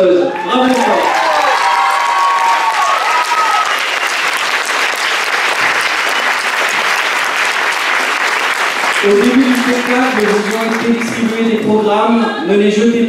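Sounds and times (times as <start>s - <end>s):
audience applauding: 0.3s - 11.7s.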